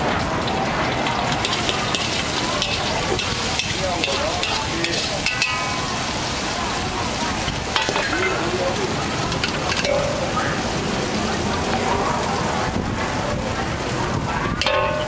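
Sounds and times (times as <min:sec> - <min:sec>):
noodles sizzling in a wok: 0:00.0 - 0:15.0
metal spatula scraping a wok: 0:01.2 - 0:06.1.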